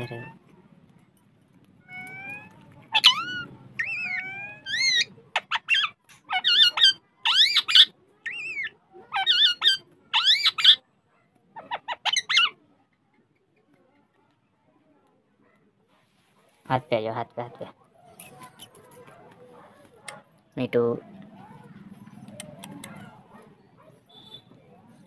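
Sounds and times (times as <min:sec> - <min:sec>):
parakeet calling: 0:01.8 - 0:10.8, 0:11.6 - 0:12.6.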